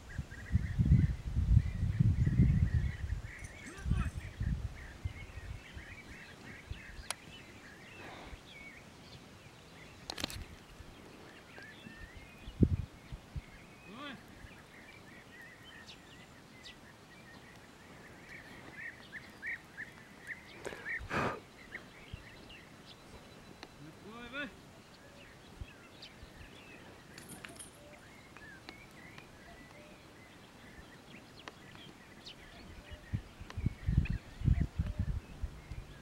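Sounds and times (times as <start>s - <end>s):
birds chirping: 0.0s - 36.0s.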